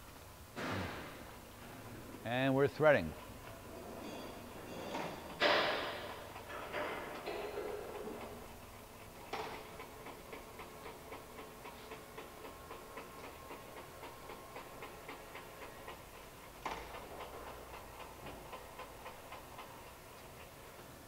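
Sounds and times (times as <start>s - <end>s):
lathe feed ticking: 5.2s - 21.0s.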